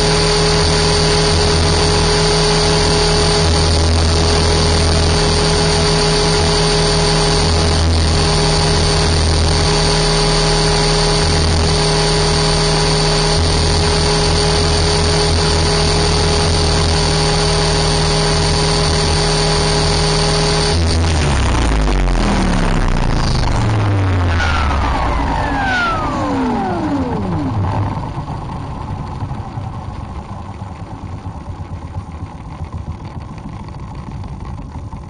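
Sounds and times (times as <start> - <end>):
motor and gear whine: 0.0 - 35.0
rotor buzz: 0.0 - 35.0.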